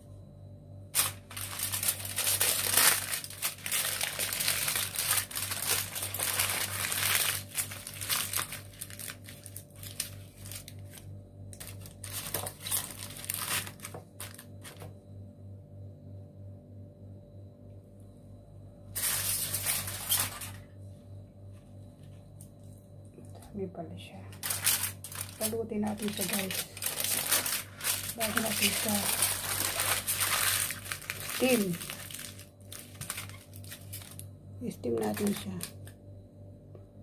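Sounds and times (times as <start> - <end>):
steady low hum: 0.0 - 37.0
aluminium foil crinkling: 0.9 - 14.9, 19.0 - 20.7, 24.3 - 36.0.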